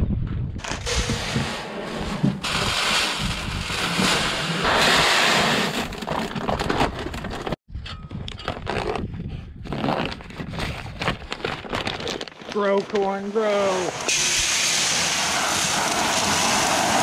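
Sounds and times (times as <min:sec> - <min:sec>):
paper sack crinkling: 0:00.6 - 0:07.6, 0:09.7 - 0:13.4
seed corn pouring into plastic box: 0:00.8 - 0:06.0.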